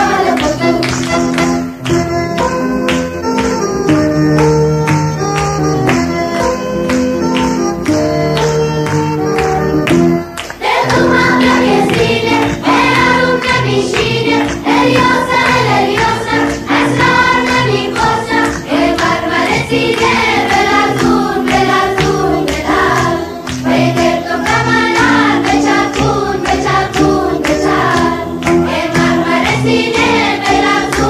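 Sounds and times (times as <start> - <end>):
children and women singing in unison: 0.0 - 0.7, 10.6 - 31.0.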